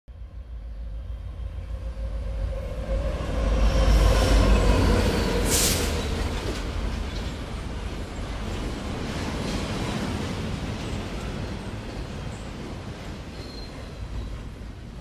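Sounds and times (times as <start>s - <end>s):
train rumbling on rails: 0.1s - 15.0s
faint wheel squeal: 13.4s - 14.4s.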